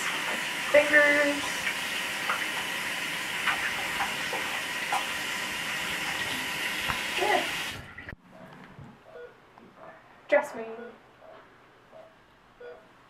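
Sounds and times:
tap water running into sink: 0:00.0 - 0:07.9.

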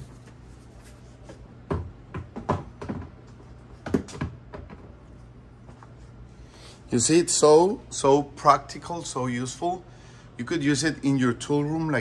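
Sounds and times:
plastic knocks and clunks: 0:01.6 - 0:03.2, 0:03.8 - 0:04.9.

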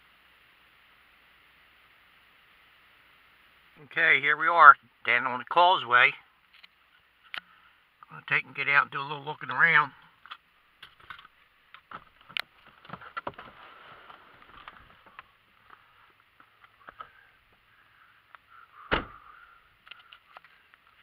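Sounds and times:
person climbing out and moving: 0:10.2 - 0:17.7
vehicle door opening: 0:18.8 - 0:19.4
loud thump: 0:18.9 - 0:19.3.

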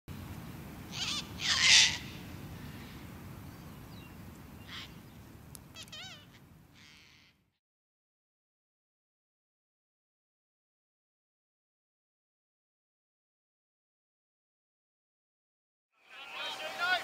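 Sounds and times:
cockatoo screeching: 0:00.9 - 0:02.1, 0:05.7 - 0:07.4.

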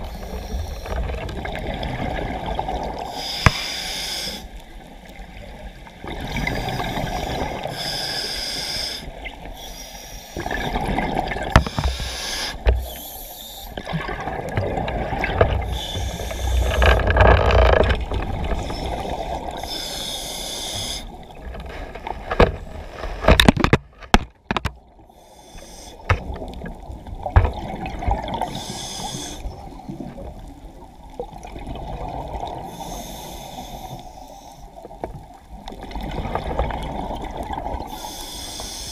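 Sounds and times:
water sloshing and gurgling: 0:00.0 - 0:38.9
diver breathing: 0:03.1 - 0:04.5, 0:06.4 - 0:10.4, 0:11.6 - 0:13.9, 0:15.5 - 0:17.8, 0:18.4 - 0:22.0, 0:25.0 - 0:26.2, 0:28.4 - 0:29.6, 0:32.6 - 0:34.7, 0:37.8 - 0:38.9.

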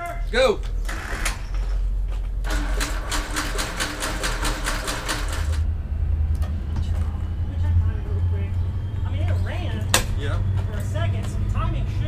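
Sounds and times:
aircraft engine starter cranking: 0:02.5 - 0:05.6.

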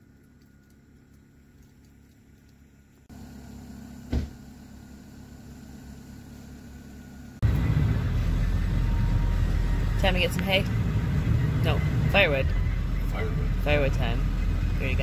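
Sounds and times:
steady low rumble: 0:05.4 - 0:15.0.

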